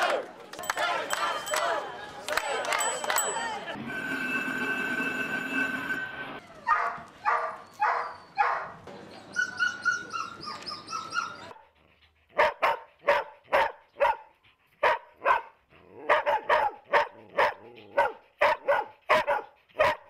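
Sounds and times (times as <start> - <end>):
dogs barking: 6.7 - 8.8, 12.3 - 20.0.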